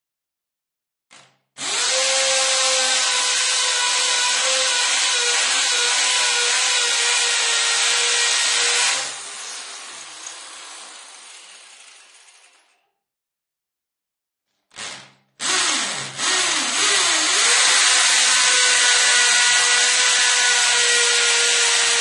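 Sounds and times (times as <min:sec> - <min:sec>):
power drill motor whining: 0:01.6 - 0:11.1.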